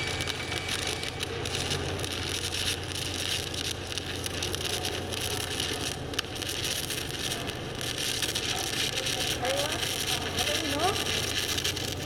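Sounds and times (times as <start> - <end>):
low hum: 0.0 - 6.2
welding arc crackling hiss: 0.0 - 12.0
welding arc pop: 0.0 - 12.0.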